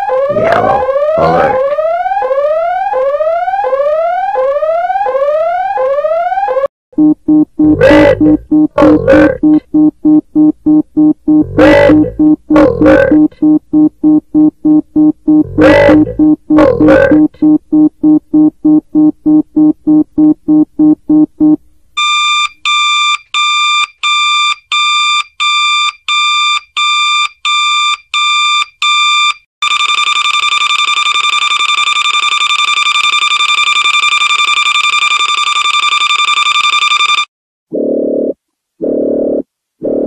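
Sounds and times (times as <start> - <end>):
continuous high alarm tone: 0.0 - 9.6, 11.3 - 13.3, 15.3 - 17.4, 29.6 - 37.3
electronic beeps: 0.3 - 1.6, 7.0 - 21.6.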